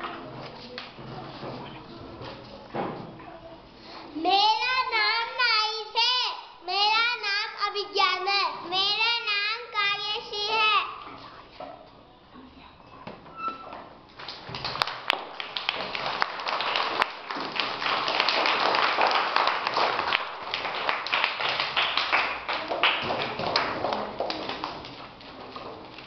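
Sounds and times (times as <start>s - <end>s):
children clapping: 14.2s - 25.2s.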